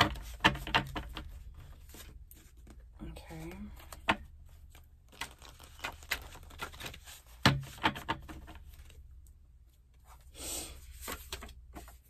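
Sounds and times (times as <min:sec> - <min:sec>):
cards tapping and clicking: 0:00.0 - 0:02.8.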